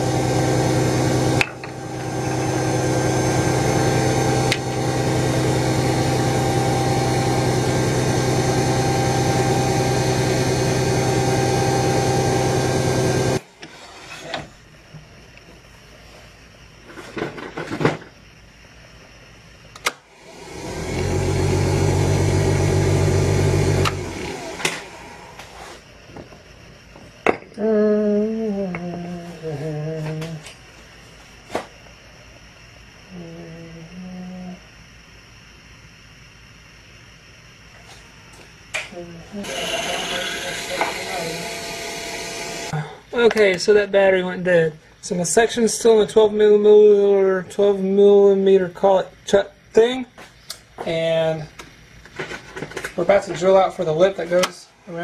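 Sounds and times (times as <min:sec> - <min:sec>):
lathe motor humming: 0:00.0 - 0:13.4, 0:20.1 - 0:25.8, 0:39.4 - 0:42.8
person humming a tune: 0:27.6 - 0:30.5, 0:33.1 - 0:34.6.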